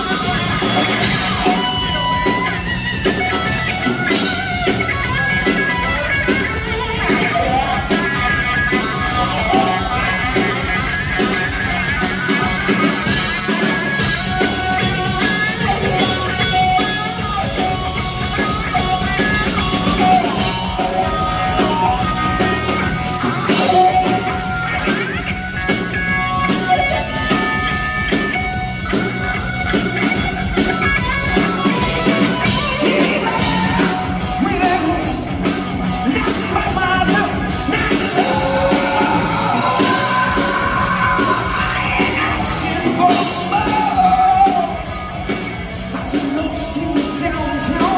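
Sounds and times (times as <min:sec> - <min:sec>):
drum kit: 0:00.0 - 0:47.9
electric guitar: 0:00.0 - 0:47.9
man singing into microphone: 0:36.2 - 0:44.8.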